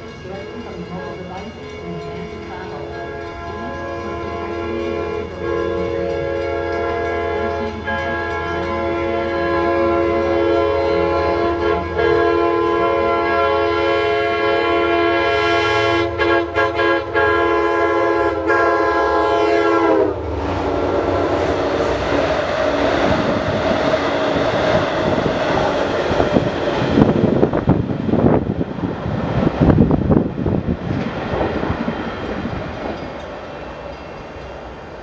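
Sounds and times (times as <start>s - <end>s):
train wheels clattering on rails: 0.0s - 10.3s, 20.3s - 35.0s
locomotive air horn: 1.0s - 25.7s.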